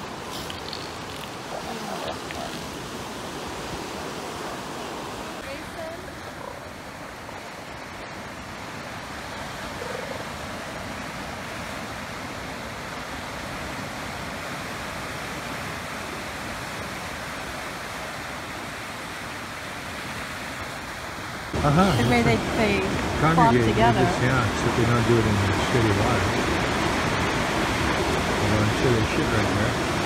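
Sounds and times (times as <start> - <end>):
surf breaking on beach: 20.2 - 30.0.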